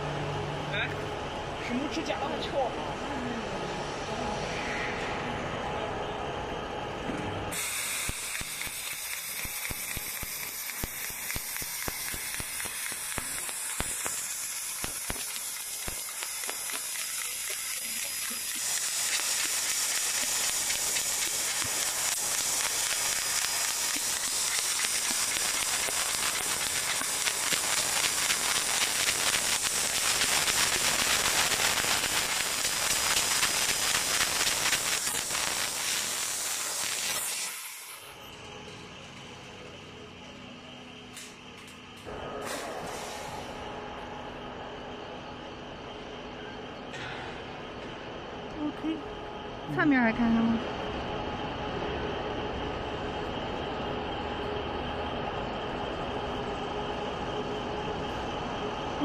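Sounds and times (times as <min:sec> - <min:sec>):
laser cutter gas hiss: 0:07.5 - 0:38.2, 0:42.5 - 0:43.6
sizzling crackle: 0:07.5 - 0:38.2.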